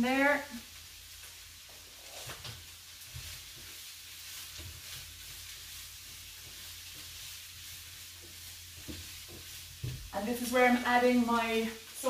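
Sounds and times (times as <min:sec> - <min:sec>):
tofu sizzling in a pan: 0:00.0 - 0:12.0.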